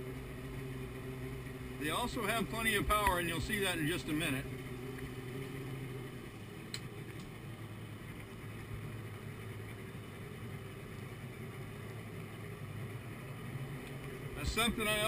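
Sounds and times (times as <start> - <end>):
boat engine idling: 0.0 - 15.0
faint ticks: 13.7 - 14.2.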